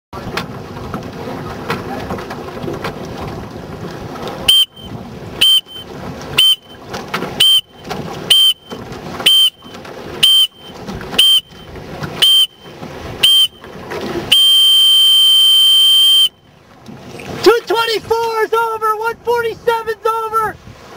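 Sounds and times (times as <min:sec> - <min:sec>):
water rushing past boat: 0:00.1 - 0:20.9
wind: 0:00.1 - 0:20.9
long continuous beep: 0:04.5 - 0:06.8, 0:07.4 - 0:13.6, 0:14.3 - 0:16.5
short high beeps: 0:04.5 - 0:06.8, 0:07.4 - 0:13.6, 0:14.3 - 0:16.5.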